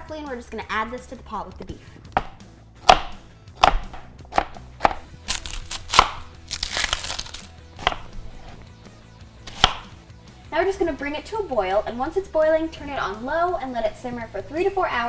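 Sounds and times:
knife chopping on plastic board: 2.1 - 6.3, 7.8 - 8.6, 9.5 - 9.9
knife cutting onion: 2.1 - 8.7, 9.4 - 10.0
onion skin crackling: 2.2 - 8.6.

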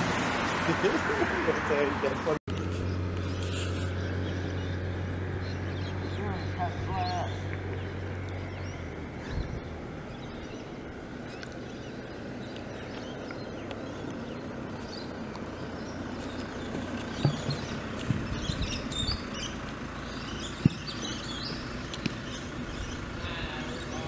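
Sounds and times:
birds chirping: 0.0 - 24.0
road traffic hum: 0.0 - 24.0
sharp knocks: 16.8 - 18.3, 20.6 - 20.9.

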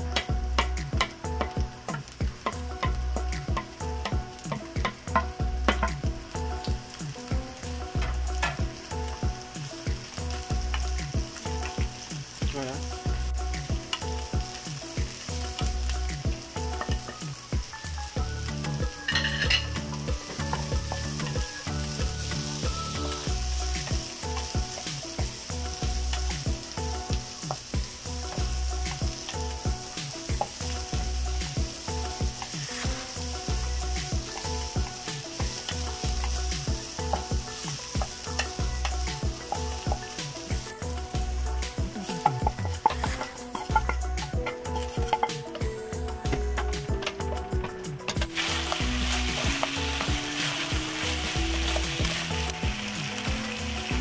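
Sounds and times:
background music with steady beat: 0.0 - 54.0
onion and garlic sizzling in oil: 0.0 - 54.0
wooden spatula scraping pan: 18.7 - 25.0, 32.0 - 40.3, 41.6 - 45.7.

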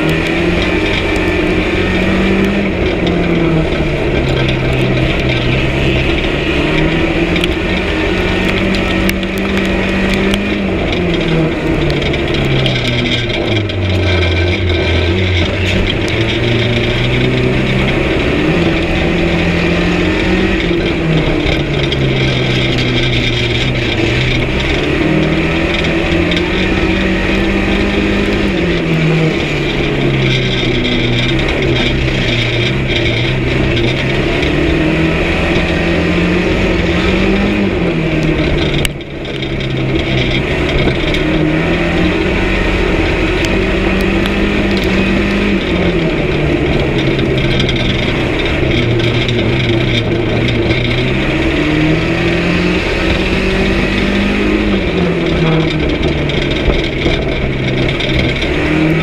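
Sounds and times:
racing car engine revving: 0.0 - 59.0.

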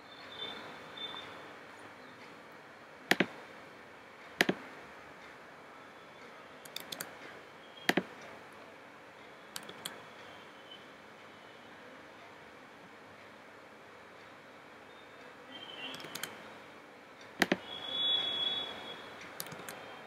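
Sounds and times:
keyboard keys and mouse clicks: 3.1 - 3.4, 4.4 - 4.7, 6.6 - 8.3, 9.6 - 10.0, 15.8 - 16.4, 17.3 - 18.1, 19.2 - 20.0.

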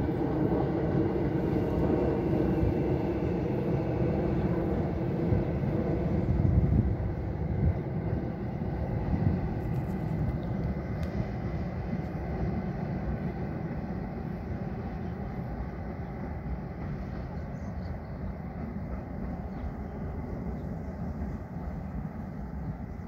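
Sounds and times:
distant train wheels rumbling: 0.0 - 23.0.

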